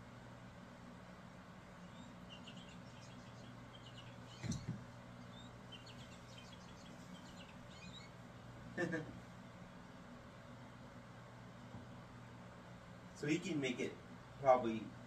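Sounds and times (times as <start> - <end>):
electronic bird chirps: 1.8 - 4.7, 5.3 - 8.1
thump: 4.4 - 4.8.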